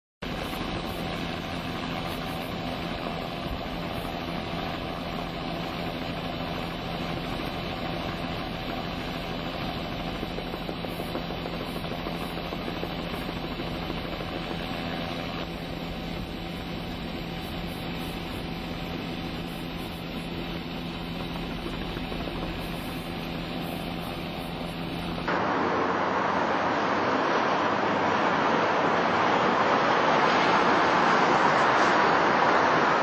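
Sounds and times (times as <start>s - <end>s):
engine drone: 0.2s - 33.0s
even rushing noise: 22.7s - 33.0s.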